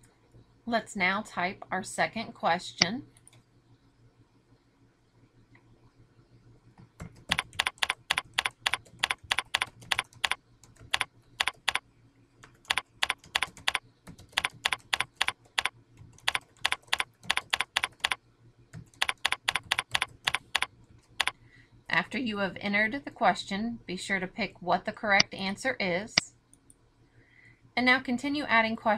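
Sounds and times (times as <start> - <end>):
computer keyboard typing: 6.8 - 11.8, 12.4 - 21.4.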